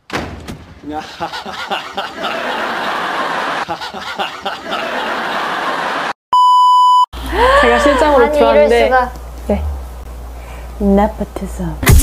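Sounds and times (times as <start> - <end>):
studio audience laughing: 0.9 - 6.2
high beep tone: 6.4 - 7.1.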